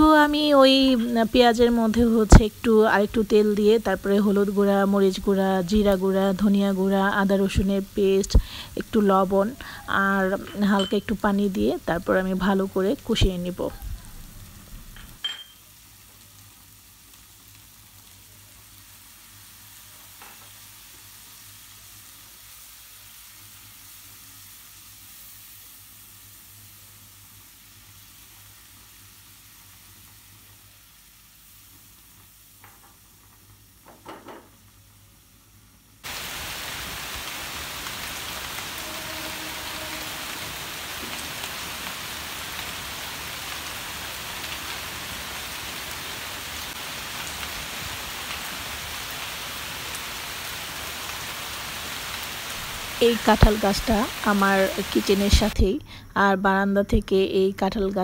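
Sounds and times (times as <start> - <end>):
onions sizzling in a frying pan: 0.0 - 58.0
heavy rain on leaves: 7.6 - 9.9, 12.8 - 22.4, 36.0 - 55.6.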